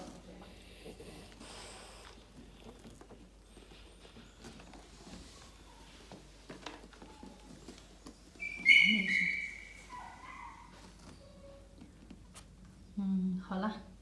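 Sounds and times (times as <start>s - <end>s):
faint rustles: 0.0s - 12.8s
puppy squealing: 8.4s - 10.7s.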